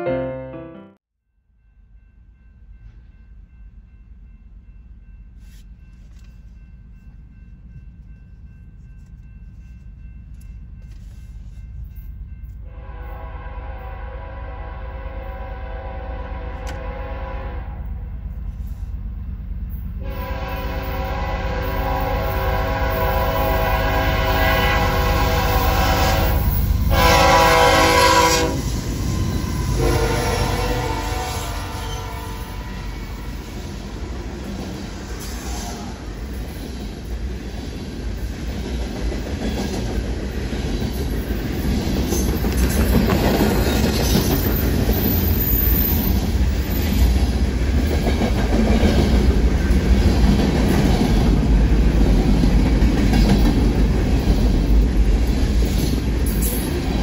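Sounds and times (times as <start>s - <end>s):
locomotive air horn blast: 12.7s - 17.9s, 20.0s - 28.8s, 29.6s - 33.4s.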